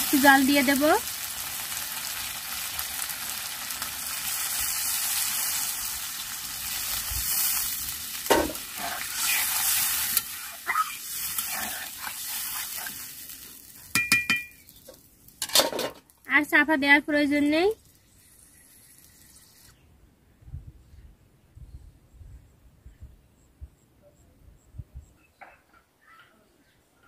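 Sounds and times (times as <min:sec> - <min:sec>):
water bursting into hot oil: 0:00.0 - 0:14.8
fish sizzling in oil: 0:00.0 - 0:19.8
spatula clinking on pan: 0:13.9 - 0:14.6.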